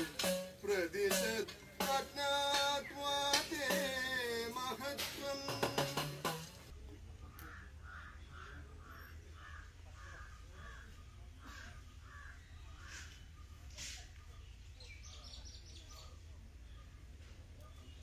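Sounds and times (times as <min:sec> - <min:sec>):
crows cawing: 0:07.2 - 0:13.1.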